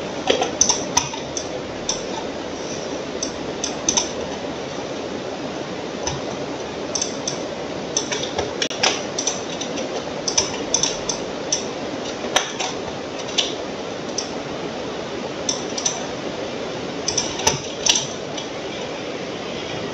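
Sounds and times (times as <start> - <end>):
steady background noise: 0.0 - 19.9
computer mouse clicking: 3.2 - 4.4, 7.0 - 14.3.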